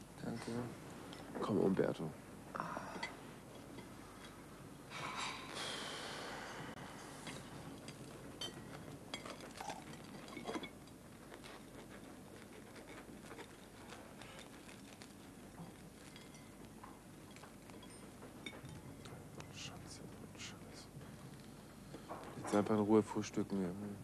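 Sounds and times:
crockery and cutlery clinking: 7.0 - 12.0, 15.6 - 20.1.

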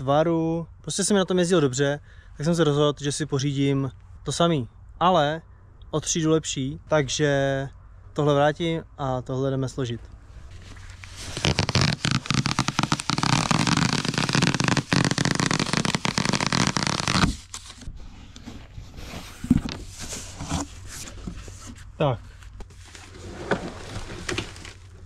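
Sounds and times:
packaging rustling and crackling: 10.4 - 17.9, 22.7 - 25.0.

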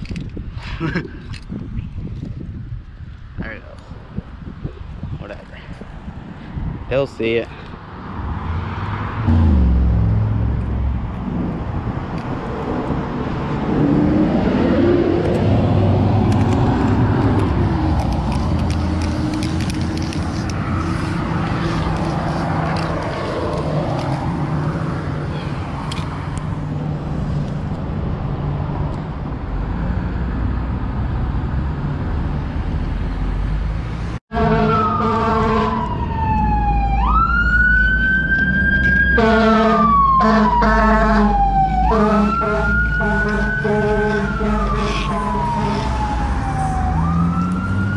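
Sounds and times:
street traffic: 0.0 - 47.9
blaring horn: 34.3 - 35.9, 39.1 - 46.0
emergency siren wailing: 34.3 - 47.9.

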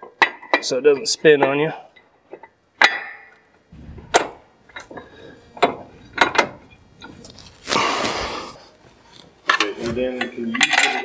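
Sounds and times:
metal scraping: 3.7 - 9.3.

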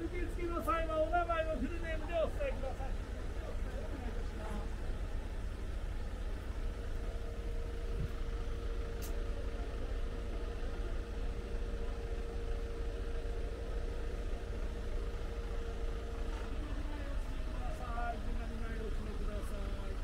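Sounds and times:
diesel buses idling: 0.0 - 20.0
faint click: 9.0 - 9.2.

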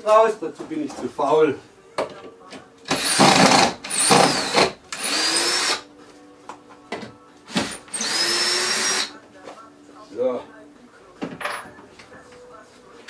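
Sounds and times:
cordless drill driving into board: 2.9 - 5.8.

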